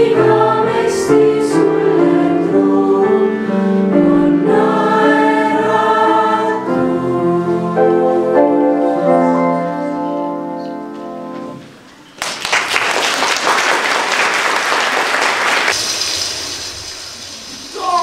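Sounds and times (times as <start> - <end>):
choir holding a chord: 0.0 - 10.2
audience applause: 12.2 - 16.3.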